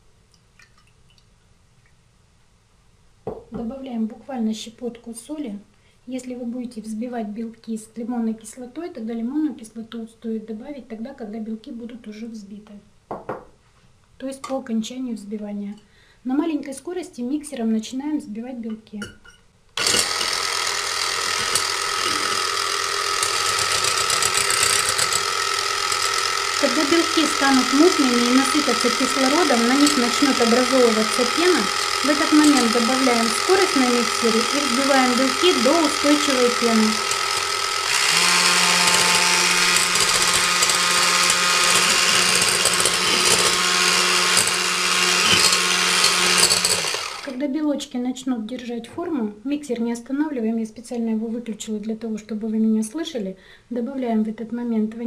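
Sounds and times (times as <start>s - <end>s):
electric hand mixer whisking: 19.8s - 47.4s.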